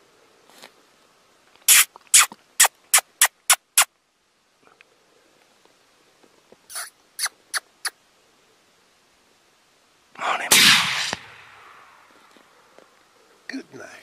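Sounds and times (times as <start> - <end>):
predator call squeaks: 1.7 - 3.9, 6.7 - 7.9
rifle shot echoing: 10.5 - 12.0.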